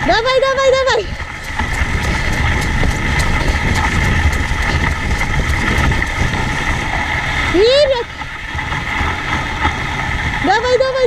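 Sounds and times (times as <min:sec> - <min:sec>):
sled rumbling and hissing on snow: 0:00.0 - 0:11.0.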